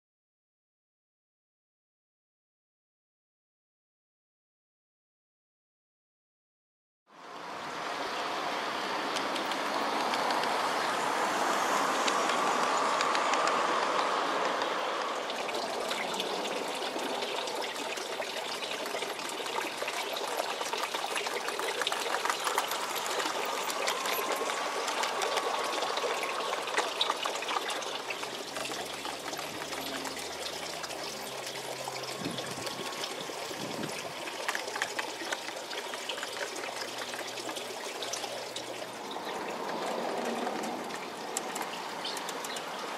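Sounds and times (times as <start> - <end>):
water rushing: 7.2 - 42.9
model train wheels clicking on track: 12.0 - 16.6, 17.2 - 33.4.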